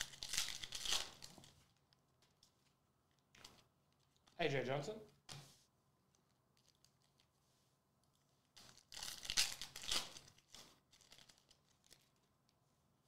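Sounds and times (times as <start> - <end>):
foil pack tearing and crinkling: 0.0 - 1.3, 8.7 - 12.2.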